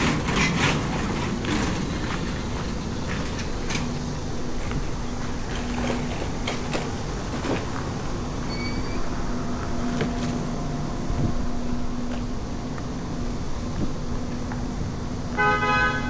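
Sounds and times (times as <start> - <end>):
scattered clicks and knocks: 0.0 - 4.8, 5.4 - 7.9
street traffic: 0.0 - 16.0
vehicle engine humming nearby: 0.0 - 16.0.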